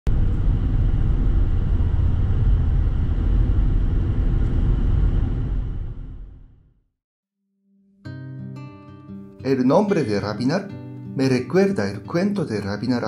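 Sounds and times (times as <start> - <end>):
car engine and road noise: 0.1 - 6.6.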